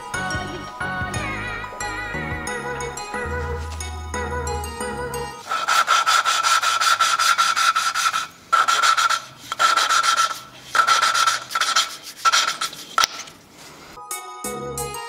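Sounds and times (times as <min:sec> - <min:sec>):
gritty rubbing with thin squeal: 0:05.4 - 0:13.1.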